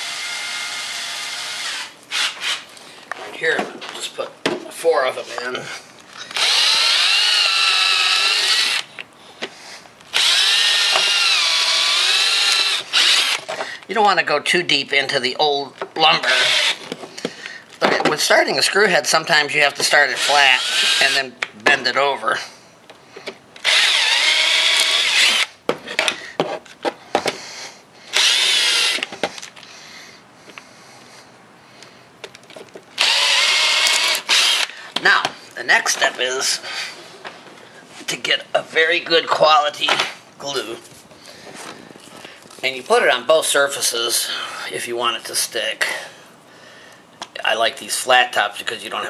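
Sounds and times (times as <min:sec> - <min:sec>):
cordless drill whining into wood: 0:00.0 - 0:02.7, 0:06.2 - 0:08.9, 0:10.1 - 0:13.6, 0:16.2 - 0:16.8, 0:20.1 - 0:21.2, 0:23.6 - 0:25.6, 0:28.1 - 0:29.1, 0:33.0 - 0:34.8.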